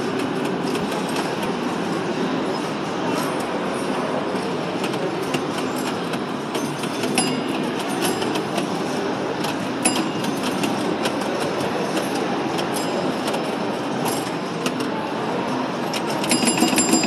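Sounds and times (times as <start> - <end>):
pinball machine rattling rumble: 3.6 - 17.0.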